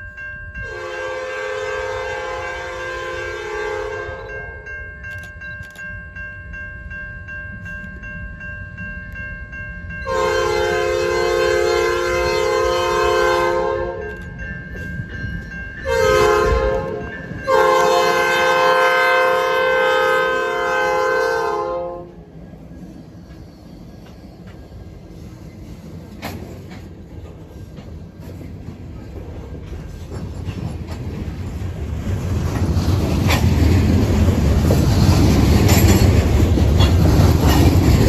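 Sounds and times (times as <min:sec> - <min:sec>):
locomotive air horn blasts: 0:00.6 - 0:04.4, 0:10.1 - 0:14.0, 0:15.8 - 0:22.2.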